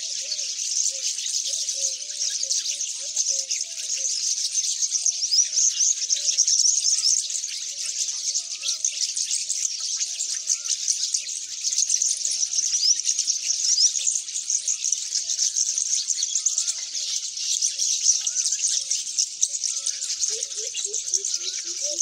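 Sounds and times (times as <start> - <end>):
small birds chirping: 0.0 - 22.0
low warbling calls: 19.9 - 22.0.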